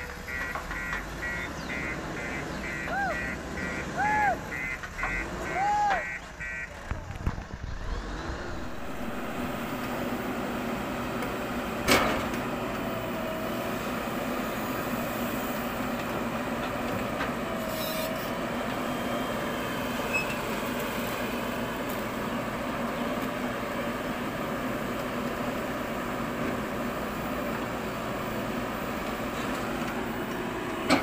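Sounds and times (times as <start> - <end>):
diesel engine under load: 0.0 - 31.0
backhoe digging soil: 6.8 - 31.0.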